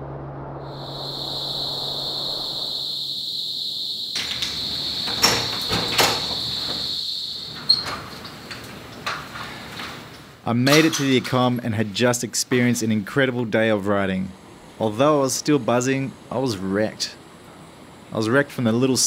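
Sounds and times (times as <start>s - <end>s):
insects trilling: 0.6s - 10.1s
wooden door knocks opening: 5.1s - 6.9s.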